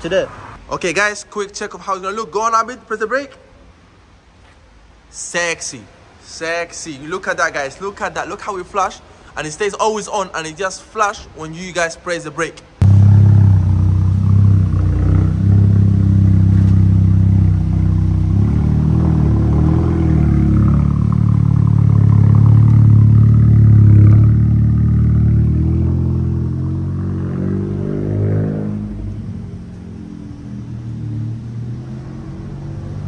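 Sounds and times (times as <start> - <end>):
car engine and exhaust drone: 12.8 - 33.0.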